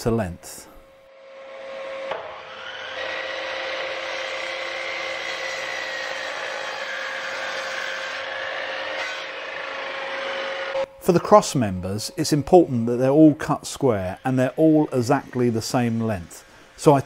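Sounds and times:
mitre saw motor whine: 0:01.1 - 0:10.9, 0:13.7 - 0:17.0
saw blade cutting wood: 0:01.4 - 0:10.9, 0:12.6 - 0:17.0.

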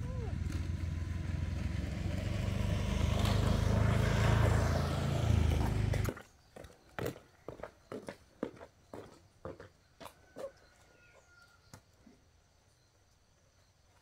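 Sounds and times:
motorbike engine running: 0:00.0 - 0:06.1.

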